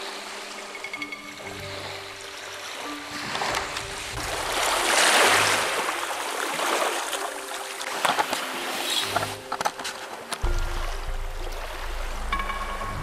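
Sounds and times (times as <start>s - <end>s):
small waves washing ashore: 0.0s - 13.0s.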